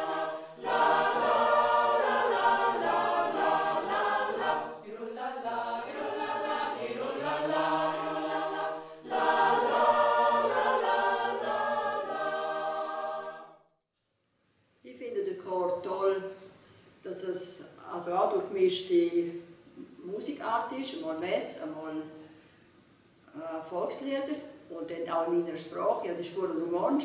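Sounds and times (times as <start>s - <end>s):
mixed choir singing: 0.0s - 13.6s.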